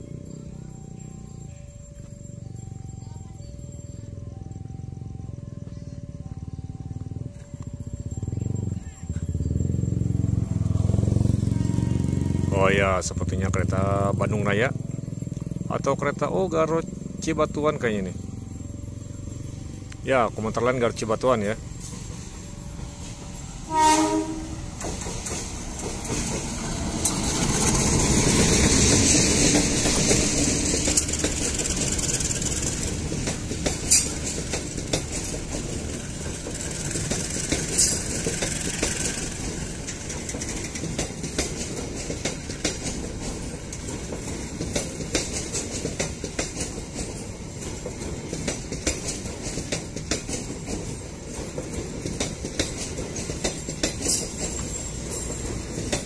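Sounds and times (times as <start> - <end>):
locomotive rumbling past: 0.0 - 56.0
wheels clicking over rail joints: 14.7 - 56.0
train horn blast: 23.6 - 24.8.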